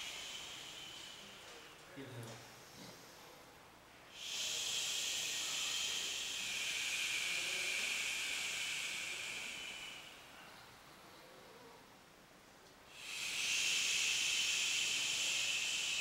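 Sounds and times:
person exhaling with a hiss: 0.0 - 1.8, 4.1 - 10.7, 12.9 - 16.0.

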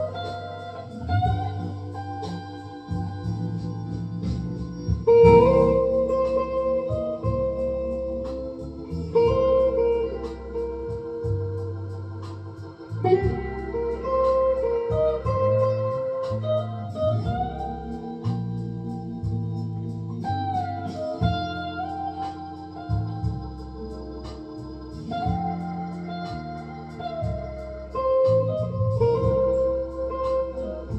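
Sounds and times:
backing track with organ and beat: 0.0 - 30.9
electric guitar lead: 0.0 - 30.9.

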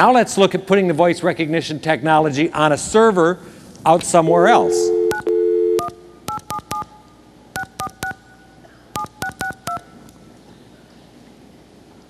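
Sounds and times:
telephone keypad beeps: 4.9 - 7.0, 7.6 - 8.2, 9.0 - 9.9.

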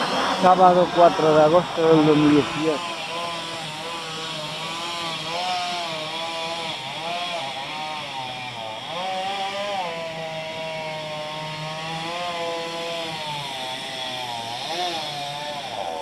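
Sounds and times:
chainsaw cutting wood: 0.0 - 16.0.

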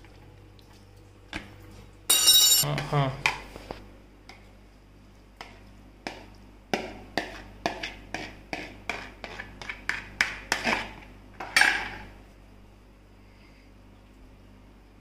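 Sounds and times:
spoon knocking and scraping bowl: 6.8 - 10.9.

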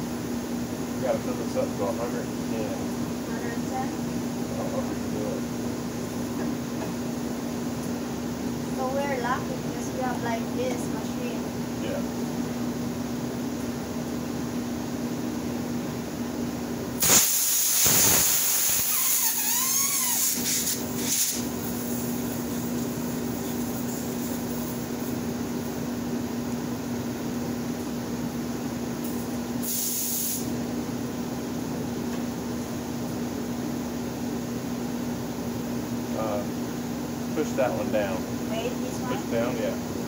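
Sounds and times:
steady low hum: 0.0 - 40.0
compressed air hissing into tire: 17.0 - 22.6, 29.6 - 30.5.

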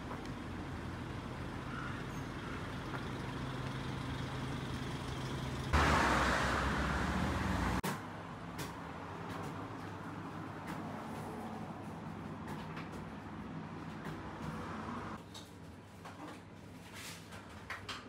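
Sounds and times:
traffic engine hum: 0.0 - 15.2
large vehicle passing close: 0.9 - 7.8.

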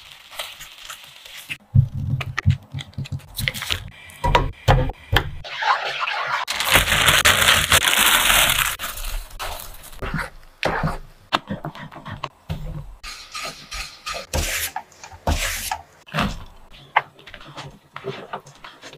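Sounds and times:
butter sizzling in a wok: 0.0 - 1.6.

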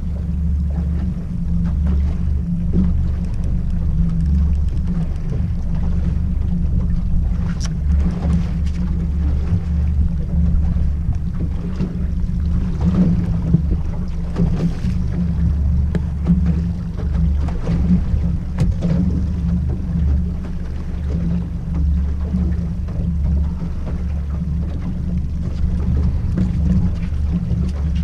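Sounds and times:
outboard motor running: 0.0 - 28.0
wind on microphone: 0.0 - 28.0.

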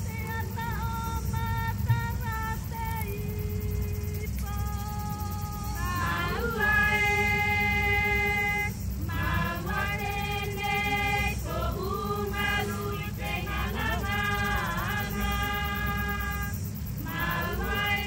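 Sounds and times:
steady low rumble: 0.0 - 18.0
voices singing: 0.0 - 18.0.

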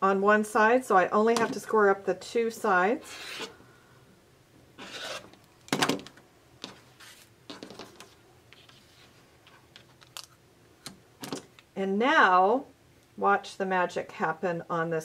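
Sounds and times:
rotary cutter cutting fabric: 4.8 - 5.3.

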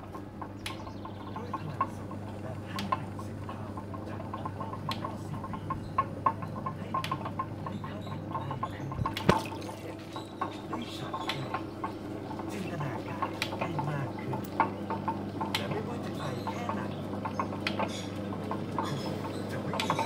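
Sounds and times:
potter's wheel humming: 0.0 - 20.0
wet clay clicks and drips: 4.4 - 10.6.

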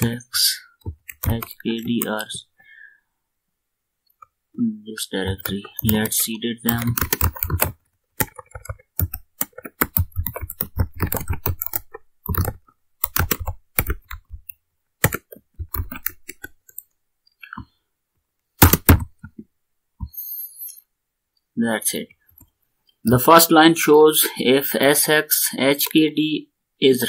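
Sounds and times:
typing on keyboard: 0.8 - 2.3, 5.3 - 6.1, 6.7 - 16.8, 18.6 - 19.4.

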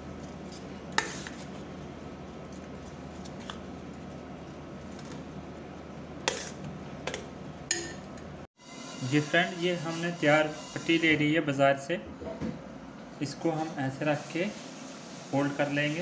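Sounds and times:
metal spoon stirring in metal bowl: 0.4 - 1.6, 6.3 - 8.0.

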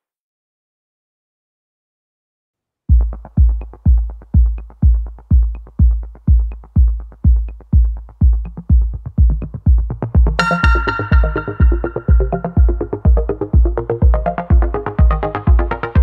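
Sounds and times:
electronic music with kick drum: 2.9 - 16.0
bright synth melody: 10.4 - 14.3.

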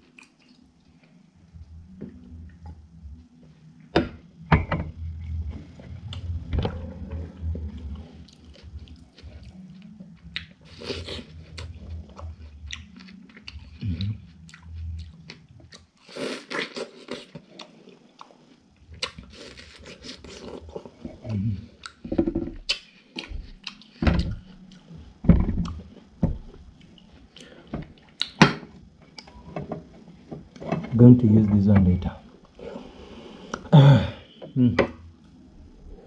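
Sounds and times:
person chewing watermelon: 7.2 - 22.0, 22.7 - 24.9.

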